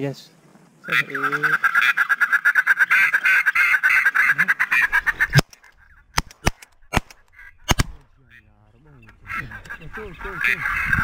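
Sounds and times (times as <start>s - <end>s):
ducks quacking: 0.8s - 11.0s
shotgun shots: 6.2s - 8.1s.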